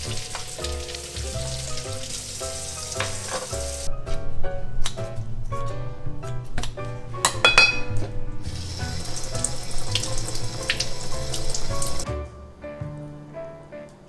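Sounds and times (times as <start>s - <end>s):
tap water running into sink: 0.0s - 3.9s, 7.4s - 12.0s.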